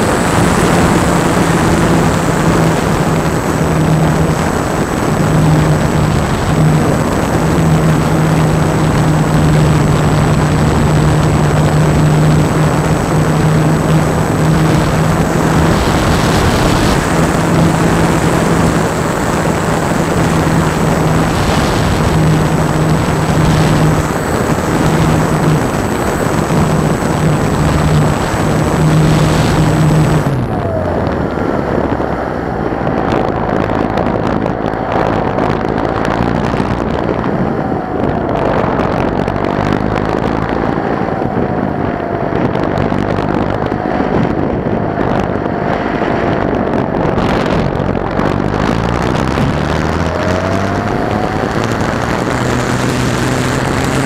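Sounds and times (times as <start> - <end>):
electric motor hum and whine: 0.0 - 54.0
wind rushing over airframe: 0.0 - 54.0.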